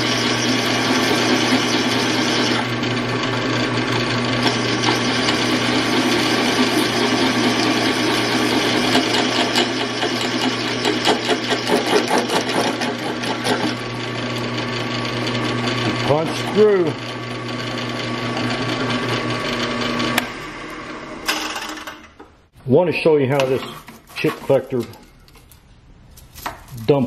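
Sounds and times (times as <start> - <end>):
drill bit grinding steel: 0.0 - 21.4
drill press motor hum: 0.0 - 22.3.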